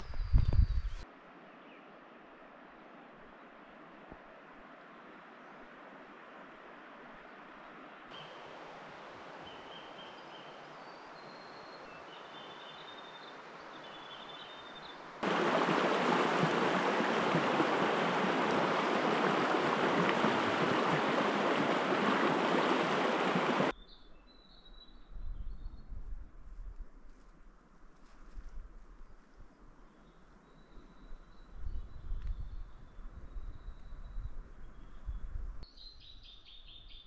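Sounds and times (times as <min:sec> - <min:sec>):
birds chirping: 0:09.4 - 0:23.7
bush ambience: 0:15.2 - 0:23.7
stream rushing over stones: 0:15.2 - 0:23.7.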